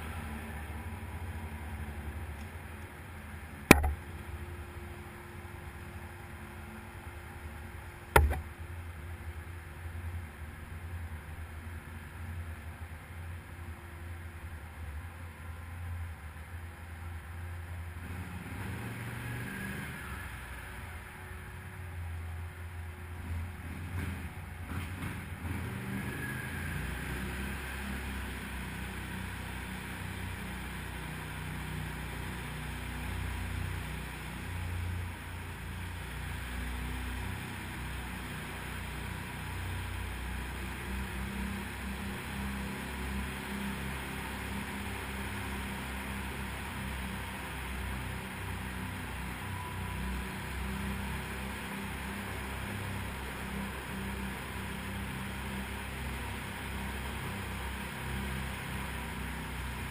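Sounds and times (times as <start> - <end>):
quad engine running: 0.0 - 6.0, 8.0 - 9.0, 23.3 - 59.9
tyre and riding noise hiss: 8.6 - 59.9.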